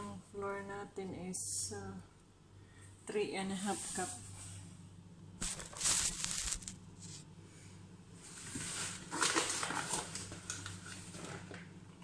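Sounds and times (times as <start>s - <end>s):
steady low hum: 0.0s - 9.1s
rustling and scraping handling noises: 5.4s - 7.3s, 8.2s - 11.5s.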